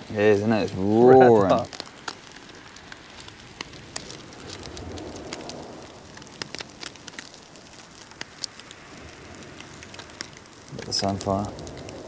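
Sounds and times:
charcoal crackling and snapping: 0.0 - 12.0
fish sizzling on a grill: 0.0 - 12.0
wind gust: 2.4 - 12.0.

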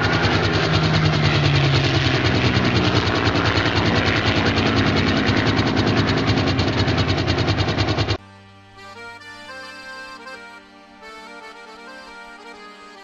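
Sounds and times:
loud pulsing mechanical noise: 0.0 - 8.2
low hum: 0.0 - 8.2.

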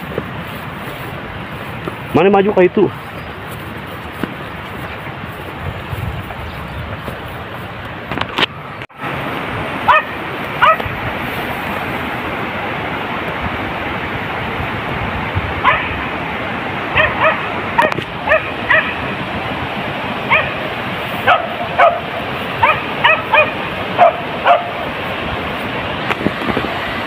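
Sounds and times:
steady rushing noise: 0.0 - 27.0
dog yelping: 9.9 - 10.8, 15.6 - 15.9, 17.0 - 19.0, 20.3 - 20.6, 22.6 - 24.8.

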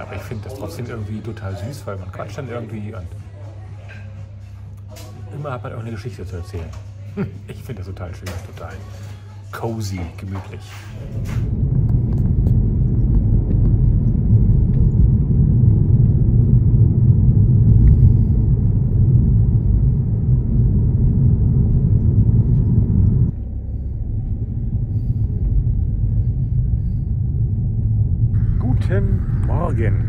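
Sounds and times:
loud low rumble: 10.8 - 30.0.

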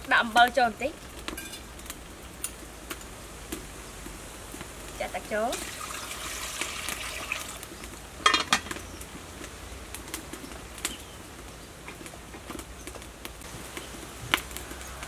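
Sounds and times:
wood fire crackling: 0.0 - 15.0
water pouring into a pot: 5.5 - 7.7.

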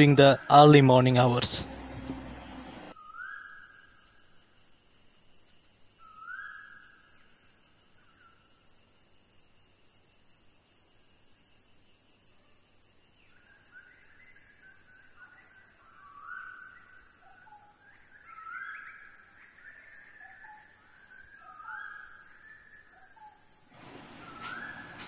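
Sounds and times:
bird calls: 0.0 - 2.9, 23.8 - 25.0.

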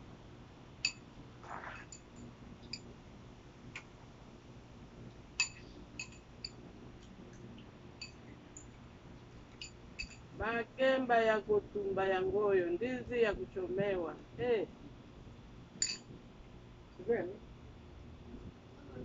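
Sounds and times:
low steady hum: 0.0 - 19.0
dishes clinking on glass table: 5.4 - 6.6, 9.6 - 10.2, 15.8 - 16.1.

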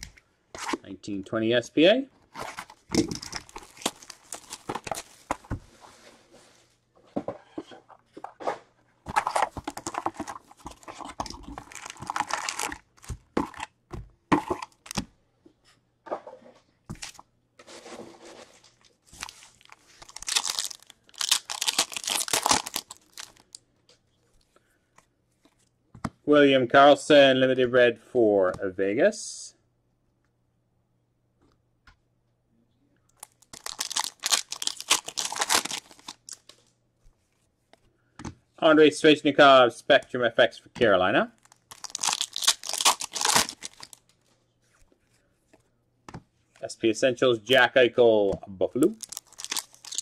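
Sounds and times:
plastic wrapper tearing and crinkling: 2.3 - 5.3, 9.1 - 13.6, 19.1 - 23.6, 33.2 - 36.5, 41.4 - 44.1, 48.9 - 50.0.

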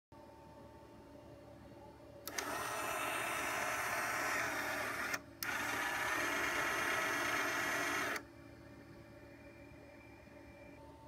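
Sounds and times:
motorized mechanism whirring: 2.2 - 8.3.

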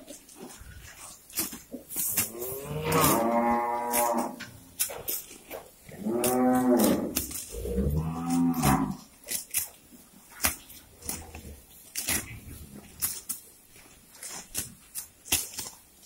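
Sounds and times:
cows tearing grass: 0.0 - 16.0
cattle mooing: 2.2 - 4.5, 5.9 - 9.1.

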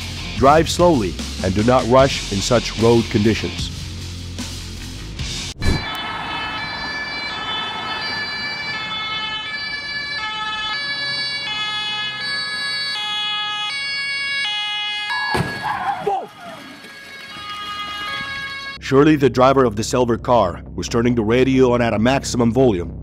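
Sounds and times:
two-tone ambulance siren: 5.6 - 18.8
car crash: 15.1 - 16.1.

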